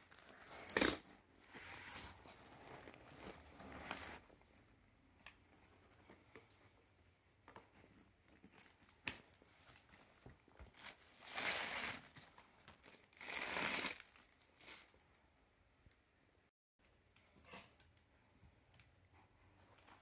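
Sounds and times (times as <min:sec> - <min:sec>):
packing wrap crinkling: 0:08.4 - 0:15.0.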